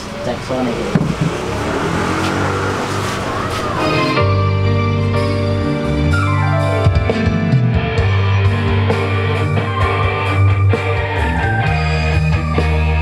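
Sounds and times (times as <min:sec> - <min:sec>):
falling pitch glide: 0:00.7 - 0:06.9
loud music with electric guitar: 0:03.5 - 0:13.0.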